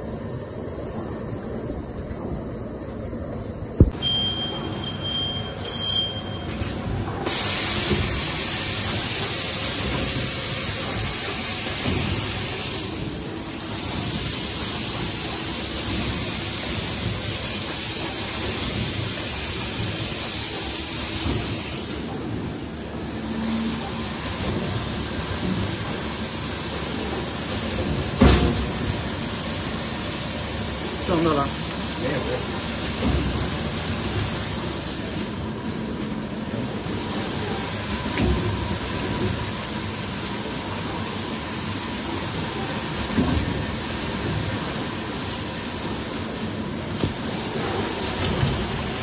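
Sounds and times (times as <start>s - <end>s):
machine hissing: 7.2s - 35.5s.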